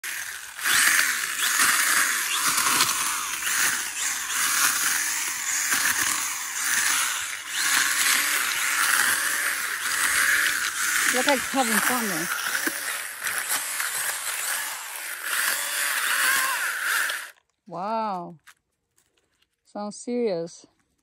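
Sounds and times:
mini chainsaw cutting stems: 0.0s - 17.4s.

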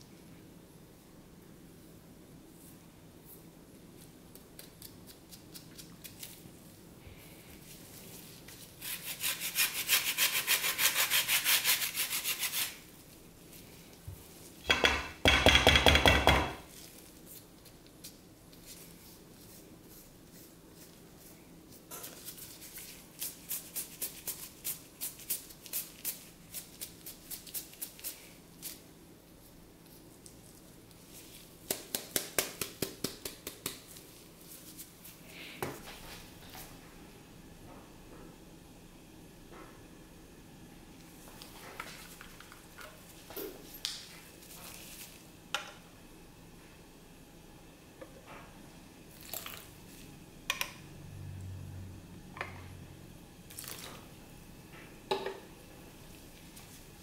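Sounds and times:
grater rasping: 8.8s - 12.8s.

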